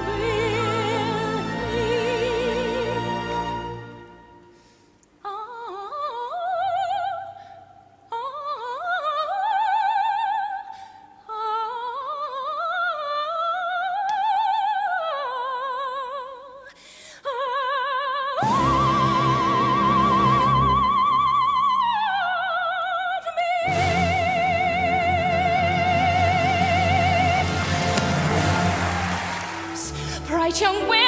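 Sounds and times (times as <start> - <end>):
soprano singing opera: 0.0 - 4.3, 5.2 - 29.0.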